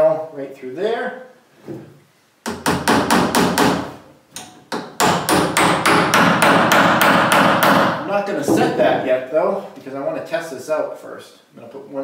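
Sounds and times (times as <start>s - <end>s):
hammer driving a nail into wood: 2.4s - 8.0s.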